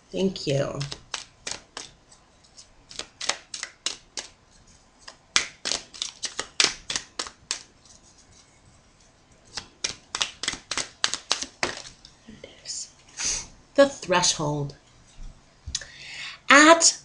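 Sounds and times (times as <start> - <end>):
cards being shuffled: 0.8 - 8.5, 9.5 - 12.0.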